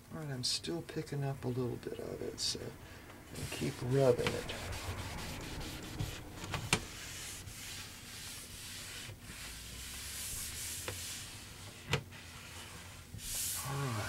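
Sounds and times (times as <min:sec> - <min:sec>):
cloth rag wiping wood: 0:03.3 - 0:14.0.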